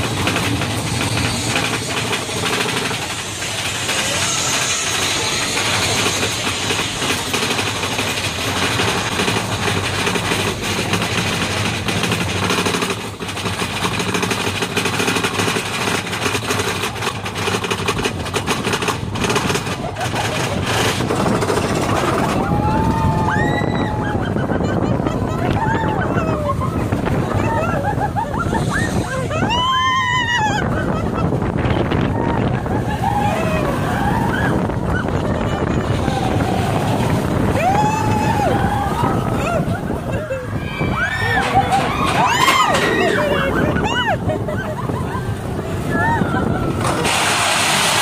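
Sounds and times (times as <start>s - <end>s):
riders shrieking: 0.0s - 7.2s, 21.6s - 31.3s, 31.9s - 48.0s
roller coaster clattering on track: 0.0s - 48.0s
wind on microphone: 20.4s - 48.0s.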